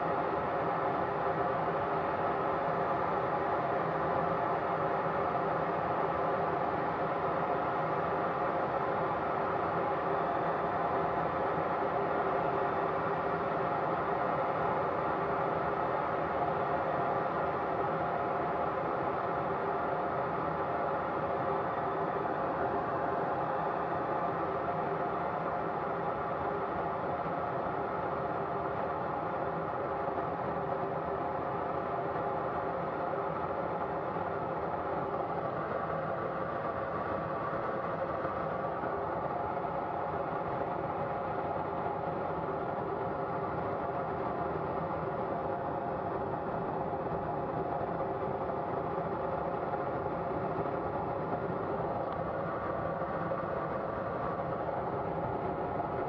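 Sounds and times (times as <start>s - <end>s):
jet turbines running: 15.9s - 56.0s.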